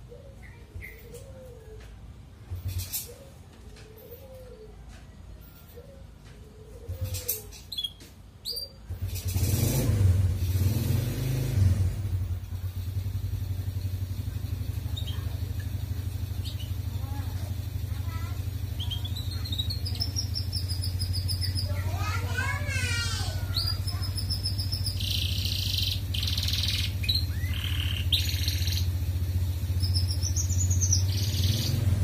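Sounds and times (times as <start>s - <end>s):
canary chirping: 7.1s - 9.8s, 14.5s - 32.0s
engine idling: 11.9s - 32.0s.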